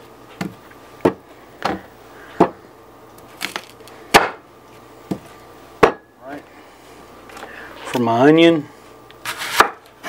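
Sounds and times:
knife chopping on wooden board: 0:04.1 - 0:04.4, 0:09.4 - 0:09.8.

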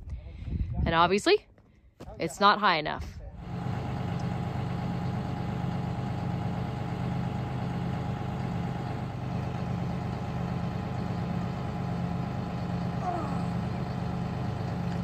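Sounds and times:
tractor diesel engine idling: 0:03.3 - 0:15.0.

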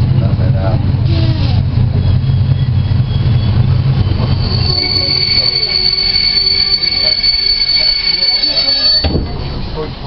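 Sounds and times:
low engine rumble: 0:00.0 - 0:10.0
high-pitched wheel squeal: 0:01.2 - 0:09.2.

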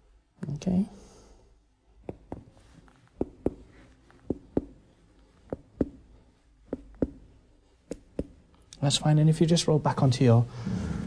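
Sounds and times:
fingers tapping on abdomen: 0:02.0 - 0:04.8, 0:05.4 - 0:08.4.

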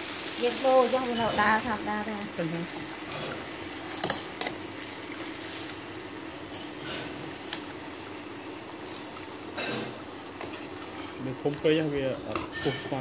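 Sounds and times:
oil frying hiss: 0:00.0 - 0:13.0
metal tongs clinking on pans: 0:12.3 - 0:13.0.

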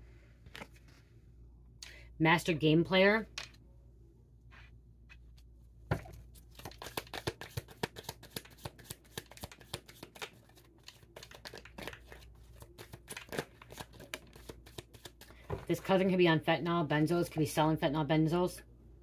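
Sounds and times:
cards shuffling clicks: 0:06.5 - 0:15.3.

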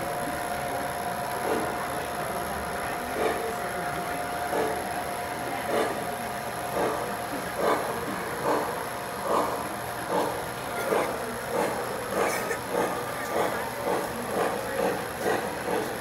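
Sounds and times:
model train wheels rumbling on track: 0:00.0 - 0:16.0.

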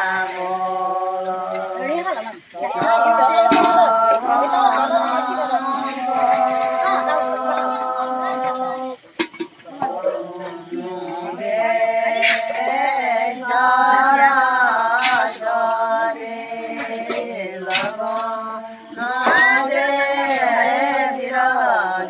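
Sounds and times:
women singing together: 0:00.0 - 0:22.0.

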